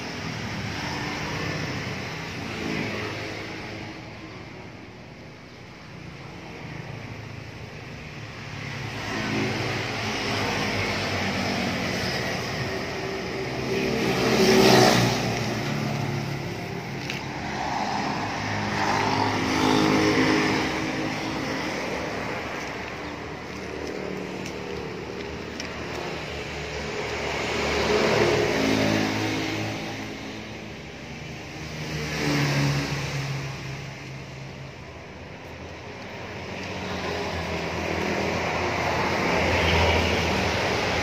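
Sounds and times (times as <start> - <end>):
two-stroke engine revving: 13.4 - 16.4.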